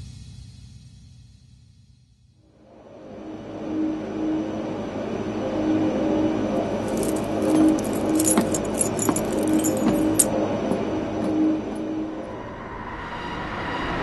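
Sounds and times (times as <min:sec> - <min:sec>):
jingling percussion: 0:06.8 - 0:10.4.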